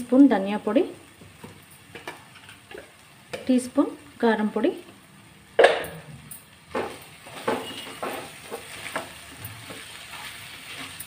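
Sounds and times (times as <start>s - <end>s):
spatula scraping a pan: 6.8s - 11.0s.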